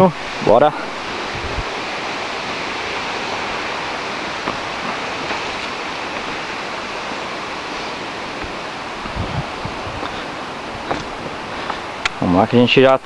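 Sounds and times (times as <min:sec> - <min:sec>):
waterfall roaring: 0:00.0 - 0:13.0.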